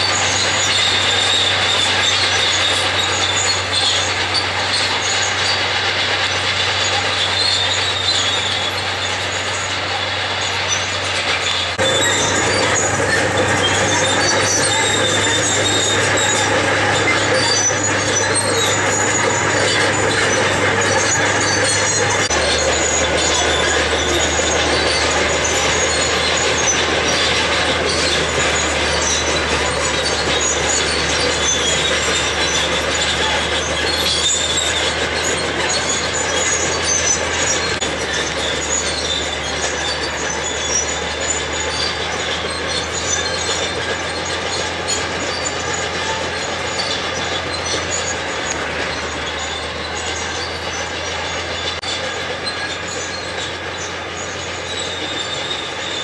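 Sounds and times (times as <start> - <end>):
diesel engine running: 0.0 - 56.0
steel tracks clattering: 0.0 - 56.0
track squeals: 0.0 - 56.0.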